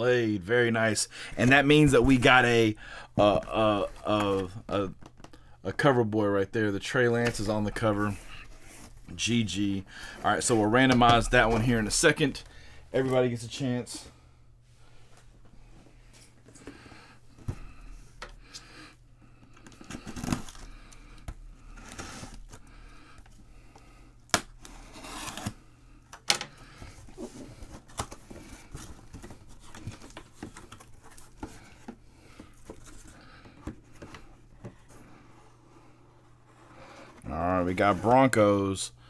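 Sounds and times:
cardboard tearing and scraping: 24.6 - 25.6.

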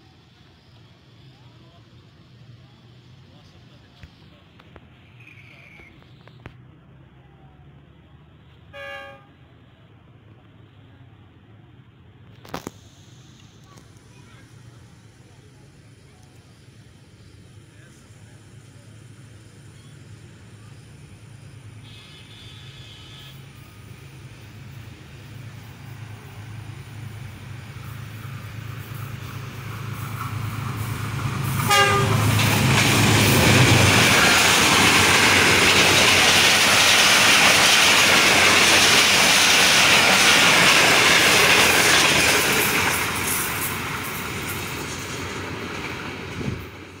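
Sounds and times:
locomotive engine drone: 0.0 - 47.0
train horn: 8.7 - 9.4, 21.8 - 23.4, 31.6 - 32.4
train rushing and clattering past: 23.2 - 47.0.

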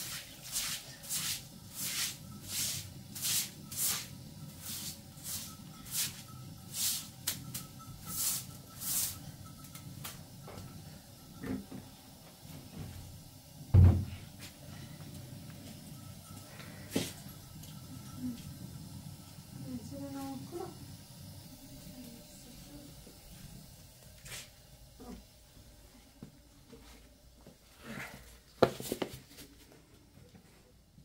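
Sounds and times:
broom sweeping wet concrete: 0.0 - 9.3, 24.2 - 24.6
loud thump: 13.7 - 14.2.

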